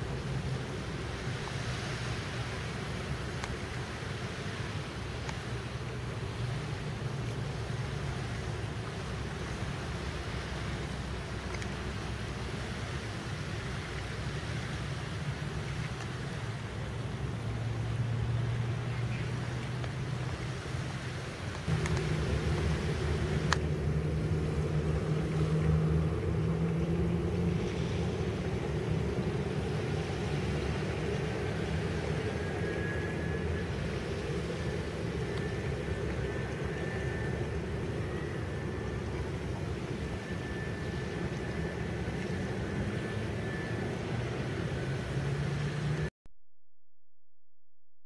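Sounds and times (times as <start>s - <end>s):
distant propeller plane droning: 0.0s - 46.1s
rushing background noise: 0.0s - 46.1s
faint high whine: 20.4s - 46.1s.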